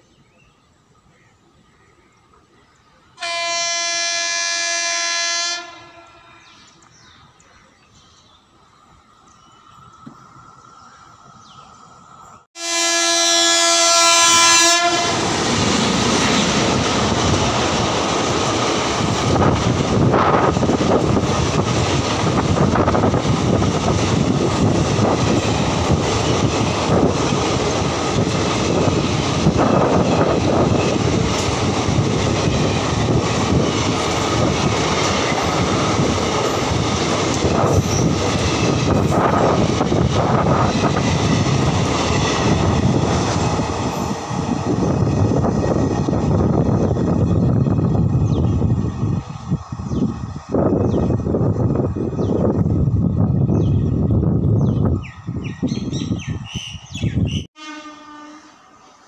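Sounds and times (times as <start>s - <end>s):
train horn blasts: 3.2s - 6.5s, 12.6s - 15.4s, 57.6s - 58.7s
train wheels rushing on rails: 13.4s - 57.5s
wheels clacking on rails: 15.0s - 52.9s.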